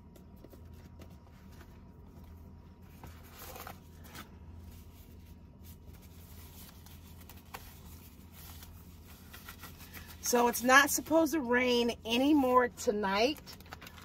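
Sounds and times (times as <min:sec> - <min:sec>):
faint low hum: 0:00.0 - 0:14.0
plastic gloves crinkling: 0:01.4 - 0:10.6, 0:13.2 - 0:14.0.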